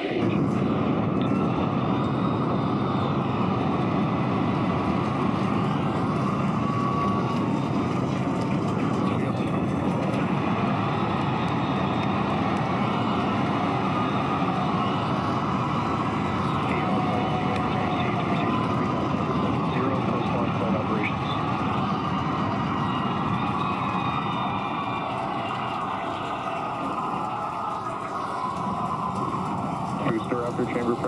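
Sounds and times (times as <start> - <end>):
rocket engines roaring: 0.0 - 31.0.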